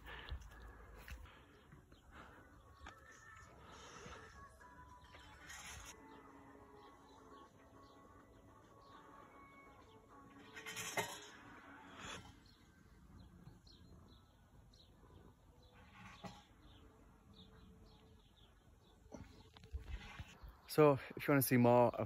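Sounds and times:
birds chirping: 12.0 - 22.0.

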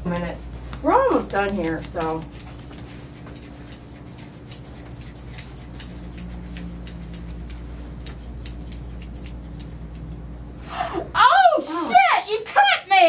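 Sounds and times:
low steady hum: 0.0 - 13.0
grooming shears snipping: 0.1 - 10.2.

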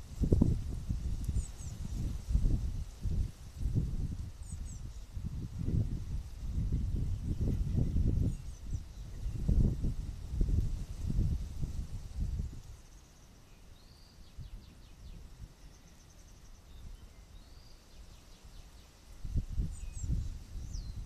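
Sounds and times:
wind buffeting microphone: 0.0 - 12.8, 19.2 - 21.0
songbird whistle and trill: 19.5 - 21.0.

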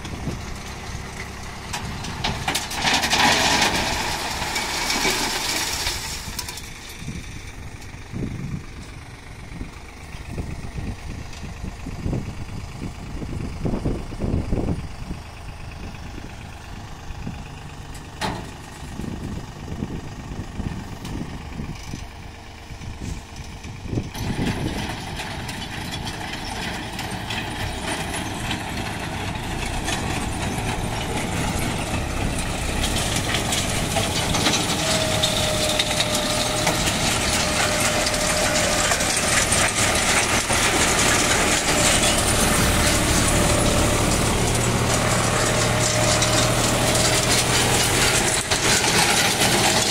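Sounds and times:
tractor engine running: 0.0 - 49.9
rattling clatter of stones: 1.1 - 7.9, 23.1 - 49.9.

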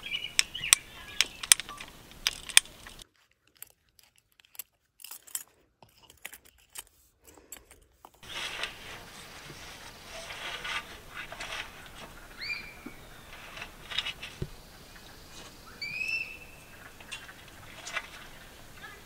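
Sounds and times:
high-pitched animal calls: 12.1 - 13.9, 14.7 - 19.0.

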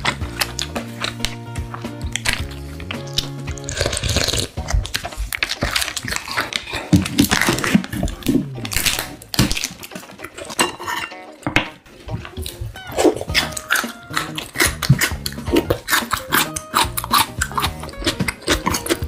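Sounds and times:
background music: 0.0 - 19.0
plastic packaging crackling: 3.2 - 10.6.

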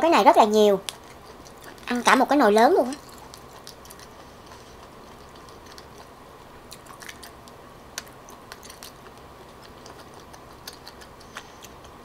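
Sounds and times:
low steady hum: 0.0 - 12.0
wet mouth eating sounds: 0.8 - 2.0, 2.8 - 12.0.

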